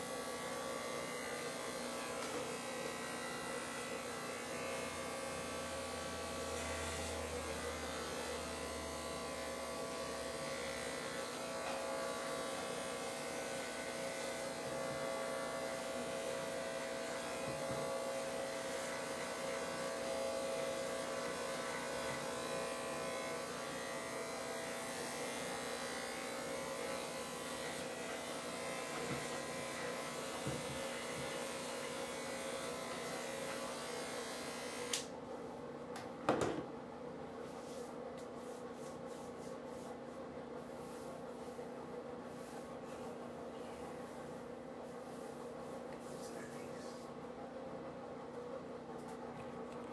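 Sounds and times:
electric hair clippers buzzing: 0:00.0 - 0:35.2.

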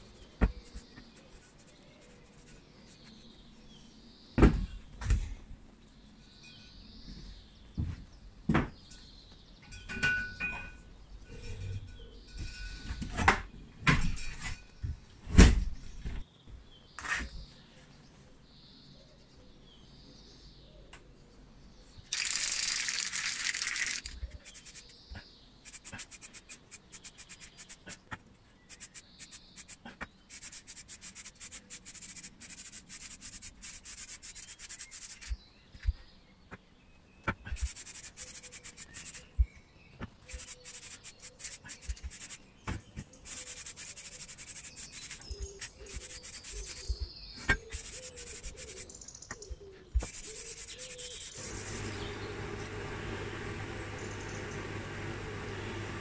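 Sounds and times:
aerosol spray hissing: 0:22.1 - 0:24.8.

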